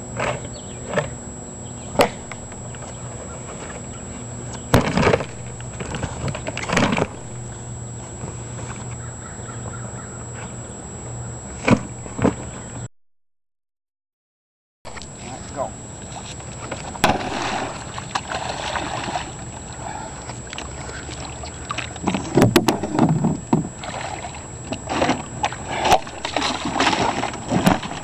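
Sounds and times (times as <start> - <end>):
steady low hum: 0.0 - 12.9, 14.9 - 28.0
boat panels snapping: 4.6 - 7.2.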